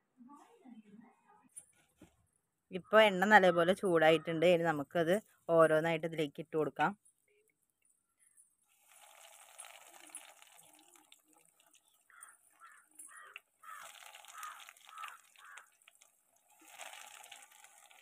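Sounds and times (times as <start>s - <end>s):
hot oil sizzling and bubbling: 8.7s - 18.0s.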